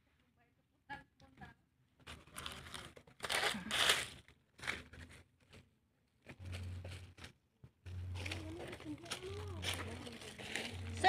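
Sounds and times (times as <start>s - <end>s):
dry leaves crunching and rustling: 2.3s - 4.9s, 7.9s - 11.0s.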